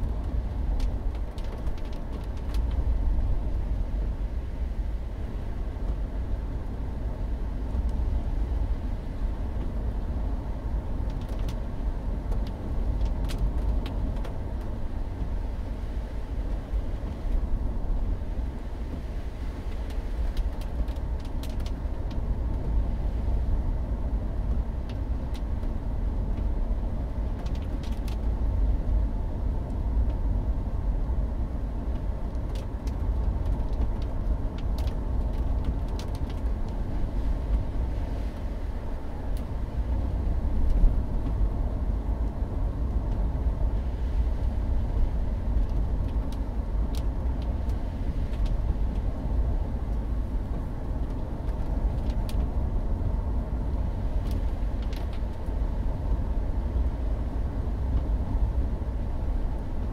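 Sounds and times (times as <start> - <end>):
car road noise on wet road: 0.0 - 59.9.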